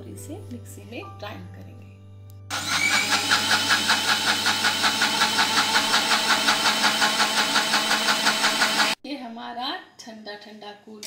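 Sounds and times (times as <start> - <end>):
mixer grinder motor whirring: 2.5 - 9.0.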